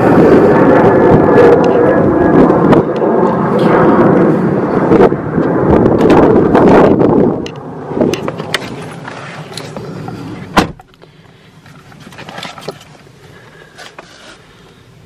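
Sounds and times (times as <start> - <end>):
outside noise: 0.0 - 15.0
car door shutting thud: 10.5 - 10.9.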